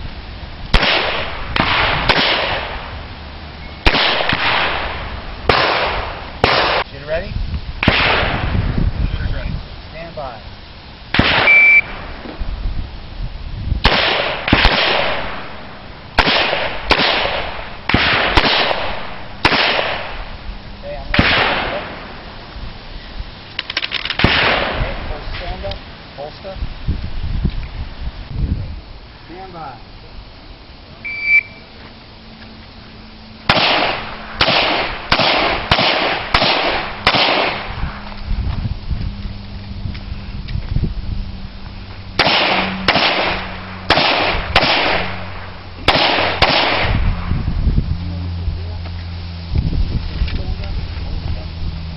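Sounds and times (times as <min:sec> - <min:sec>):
pistol shots with echo: 0:00.8 - 0:02.8, 0:03.8 - 0:06.8, 0:11.2 - 0:11.9, 0:13.8 - 0:15.5, 0:16.2 - 0:20.2, 0:21.2 - 0:22.1, 0:24.2 - 0:25.0, 0:33.5 - 0:37.8, 0:42.2 - 0:47.0
shot timer beep: 0:11.5 - 0:11.9, 0:31.0 - 0:31.6
handgun shots with echo: 0:33.5 - 0:37.7, 0:42.2 - 0:45.2, 0:45.9 - 0:47.0.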